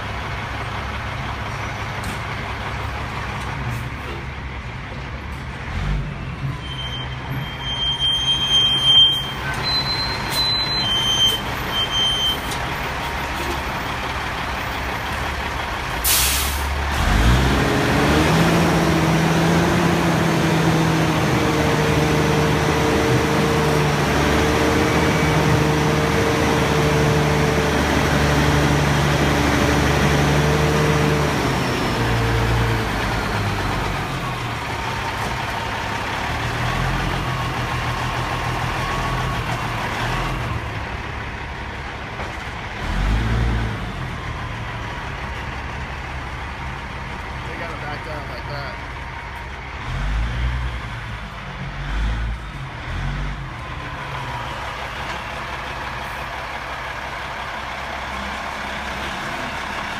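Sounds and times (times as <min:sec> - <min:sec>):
heavy diesel engine: 0:00.0 - 0:59.9
air brake hiss: 0:16.0 - 0:16.8.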